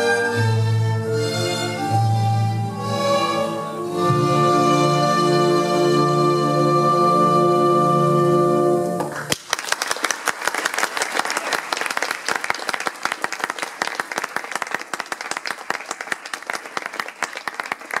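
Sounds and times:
audience applauding: 0:09.0 - 0:18.0
close hand claps: 0:09.0 - 0:18.0.

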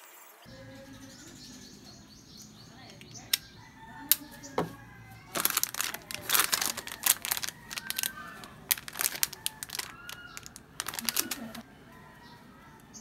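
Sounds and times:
plastic packaging crinkling: 0:04.6 - 0:11.6.

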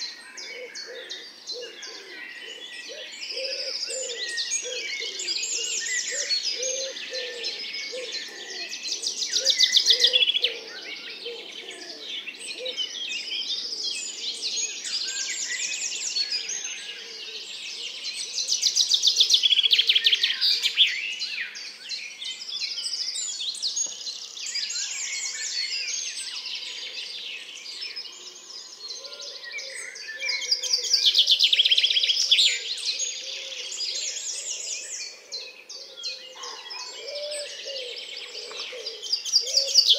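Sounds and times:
song thrush singing: 0:00.0 - 0:39.9
woodpigeon cooing: 0:00.4 - 0:12.9, 0:35.1 - 0:39.9.

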